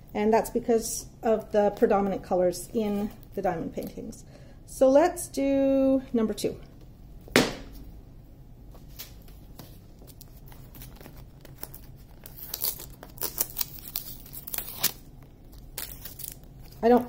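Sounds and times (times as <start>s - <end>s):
packaging crinkling and tearing: 9.9s - 17.0s.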